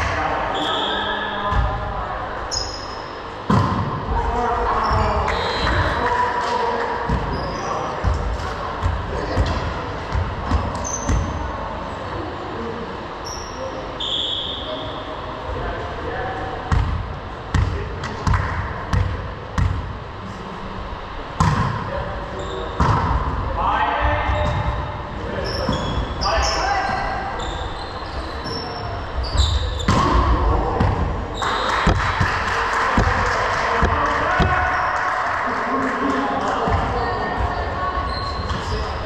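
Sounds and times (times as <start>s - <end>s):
players' voices echoing: 0.0s - 39.0s
sneaker squeaks: 0.5s - 1.8s, 2.4s - 3.3s, 4.7s - 6.1s, 7.1s - 8.2s, 9.3s - 11.4s, 13.2s - 15.2s, 22.3s - 23.1s, 24.2s - 30.2s, 36.7s - 39.0s
volleyball bouncing and struck: 3.4s - 4.0s, 21.4s - 21.8s, 22.8s - 23.3s, 29.7s - 31.1s, 31.8s - 32.4s, 33.8s - 34.7s.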